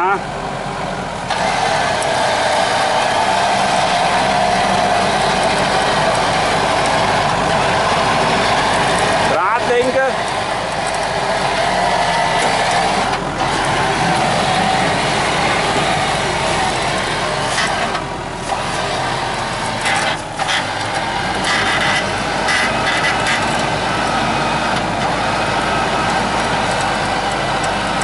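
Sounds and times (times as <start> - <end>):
suv engine revving: 0.0 - 28.0
wheels spinning in mud: 1.3 - 28.0.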